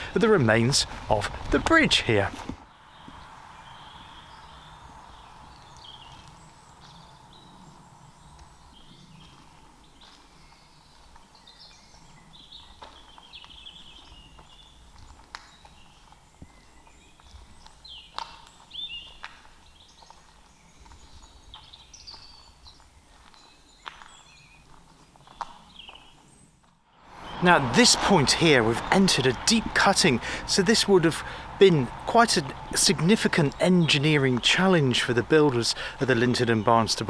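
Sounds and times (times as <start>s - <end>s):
footsteps on grassy path: 0.8s - 3.8s, 4.4s - 26.8s
birds chirping and singing: 2.0s - 26.6s, 27.2s - 37.0s.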